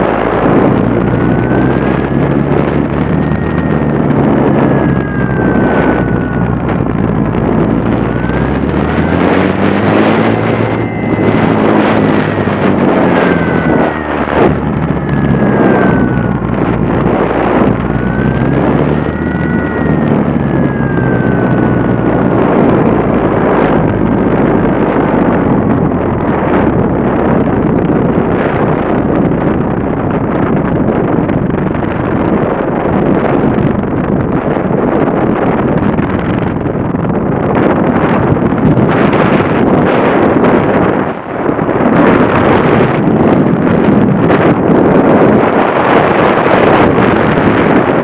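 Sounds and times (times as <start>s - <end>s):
model plane motor: 0.0s - 36.2s
wind rushing over microphone: 0.0s - 48.0s.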